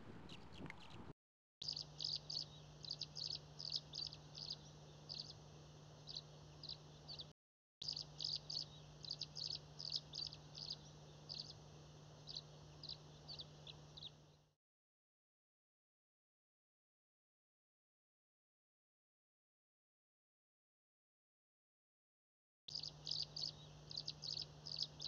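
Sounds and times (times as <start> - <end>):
low hum: 0.0 - 1.1
small bird chirping: 0.0 - 14.5, 22.7 - 25.0.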